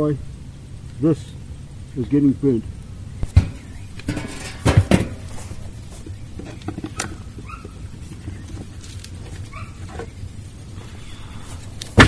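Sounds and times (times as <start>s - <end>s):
short rising calls: 9.4s - 12.0s.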